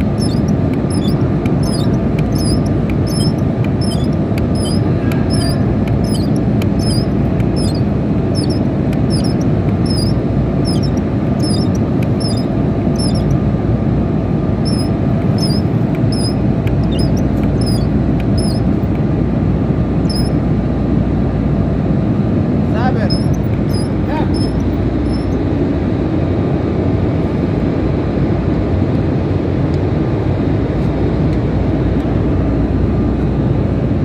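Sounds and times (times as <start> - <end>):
high-pitched chirp: 0.0 - 13.4, 14.6 - 18.8, 20.1 - 20.4, 23.0 - 25.4
hydraulic pump running: 0.0 - 13.6, 14.4 - 19.1, 22.7 - 25.4.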